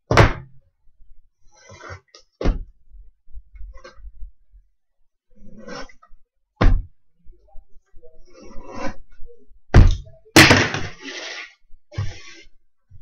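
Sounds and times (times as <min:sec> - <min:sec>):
boxes scraping and rustling: 0:01.4 - 0:02.4, 0:05.3 - 0:06.2, 0:08.2 - 0:09.2, 0:10.4 - 0:13.0.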